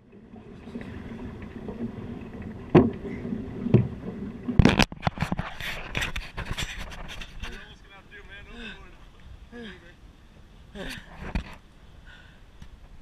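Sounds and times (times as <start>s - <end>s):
dull thumps: 2.6s - 5.4s
camera rubbing and handling noise: 4.6s - 7.7s.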